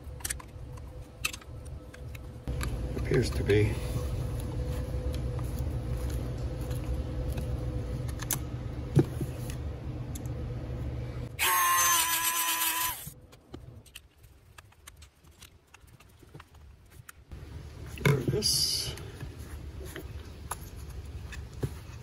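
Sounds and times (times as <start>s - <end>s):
rotary grinding tool humming: 11.4s - 13.2s.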